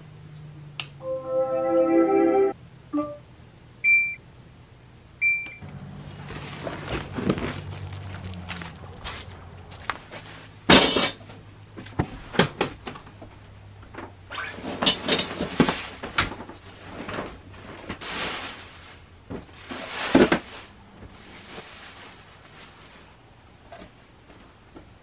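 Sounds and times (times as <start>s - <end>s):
plastic bags rustling: 5.8s - 11.4s, 14.4s - 23.4s.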